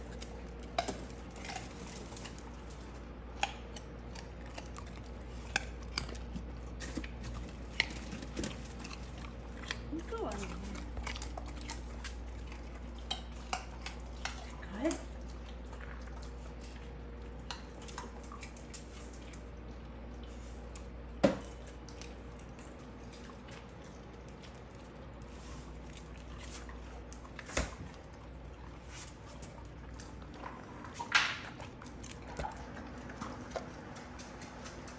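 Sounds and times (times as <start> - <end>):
clicks and knocks on tile floor: 33.2 - 34.9.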